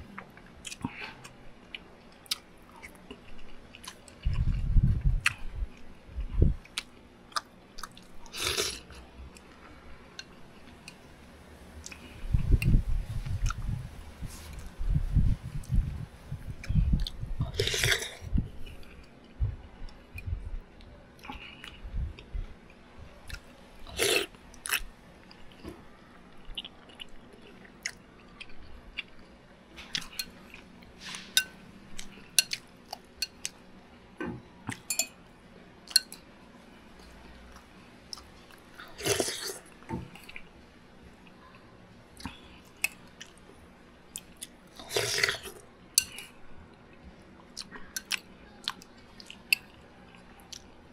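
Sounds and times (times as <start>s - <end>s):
chewing: 44.1s - 50.8s.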